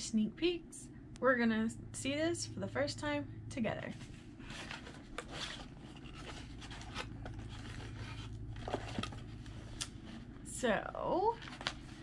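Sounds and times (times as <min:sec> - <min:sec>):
steady low hum: 0:00.0 - 0:12.0
cardboard scraping and clicks: 0:04.4 - 0:09.9
cardboard box being handled: 0:04.4 - 0:10.3.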